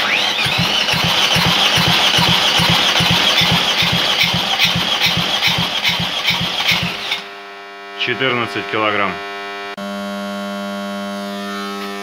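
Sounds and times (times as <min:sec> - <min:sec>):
diesel engine cranking on starter: 0:00.0 - 0:07.3.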